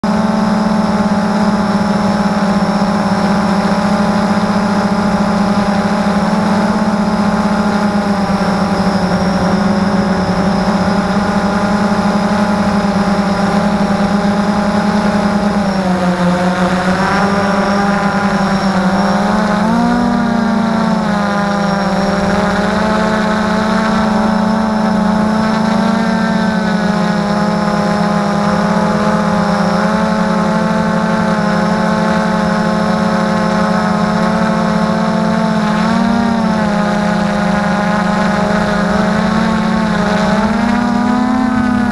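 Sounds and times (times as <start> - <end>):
drone motors buzzing whine: 0.0 - 41.9.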